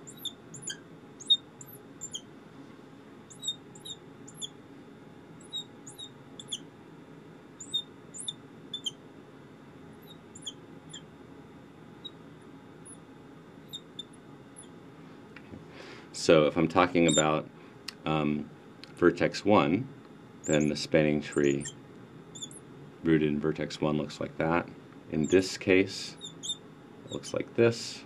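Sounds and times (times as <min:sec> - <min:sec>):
marker squeaking on glass: 0:00.0 - 0:02.2, 0:03.3 - 0:04.5, 0:05.4 - 0:06.6, 0:07.6 - 0:09.0, 0:10.0 - 0:11.1, 0:12.0 - 0:12.2, 0:12.8 - 0:13.0, 0:13.6 - 0:14.7, 0:17.0 - 0:17.3, 0:20.4 - 0:22.6, 0:25.2 - 0:25.4, 0:26.2 - 0:27.4.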